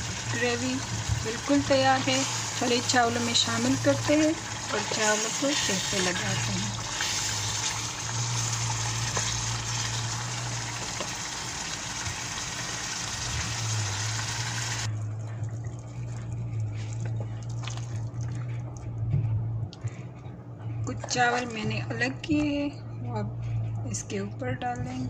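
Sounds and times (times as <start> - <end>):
gravy sizzling in a pan: 0.0 - 14.9
low steady hum: 0.0 - 25.0
spatula scraping a pan: 4.7 - 7.5.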